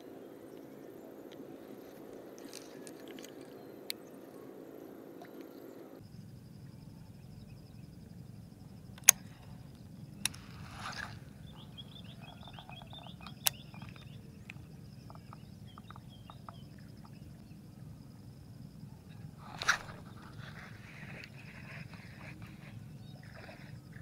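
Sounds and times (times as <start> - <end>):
high insect buzz: 0.0 - 24.0
light ticking of lure: 8.9 - 17.4
rod swish: 10.4 - 11.2, 19.5 - 20.5.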